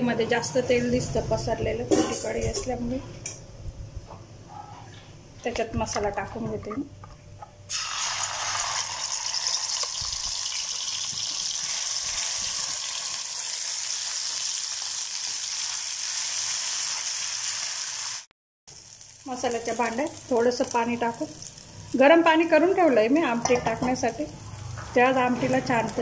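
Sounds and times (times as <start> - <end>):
paste sizzling in hot oil: 7.7 - 22.0.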